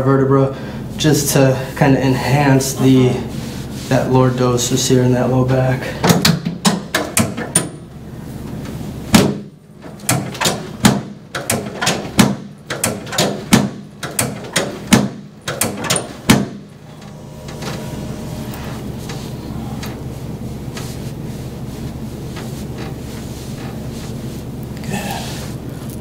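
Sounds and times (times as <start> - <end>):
sharp clacks of chiropractic adjusting: 6.0 - 7.8, 9.1 - 16.7.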